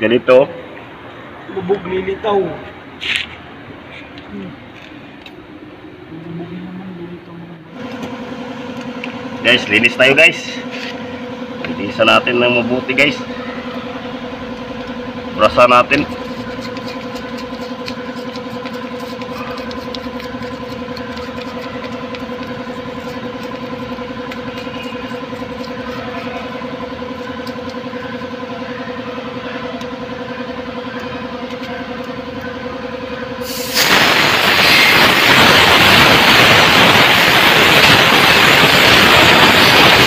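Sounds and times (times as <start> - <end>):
steady mechanical hum: 0.0 - 40.0
compressed air hissing from blow gun: 33.4 - 40.0.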